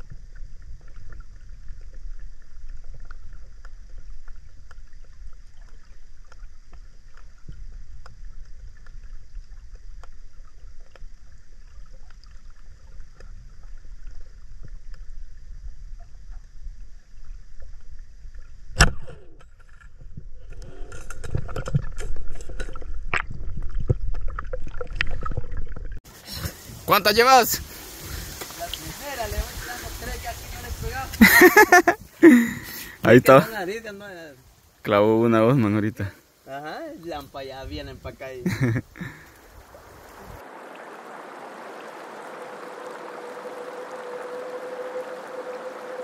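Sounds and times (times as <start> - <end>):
low underwater rumble: 0.0 - 26.0
bubbling churning water: 39.2 - 46.0.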